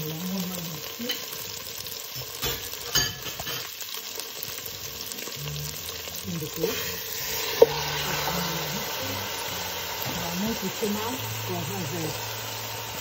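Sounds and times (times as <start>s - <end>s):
vegetables sizzling in oil: 0.0s - 13.0s
wooden spatula scraping pot: 6.6s - 10.4s.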